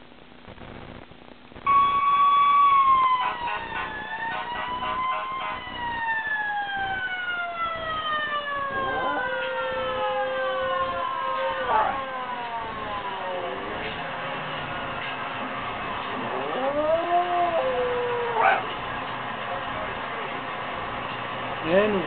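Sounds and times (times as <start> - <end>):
steady held tone: 1.6 - 2.3
fire truck siren wailing: 1.6 - 22.0.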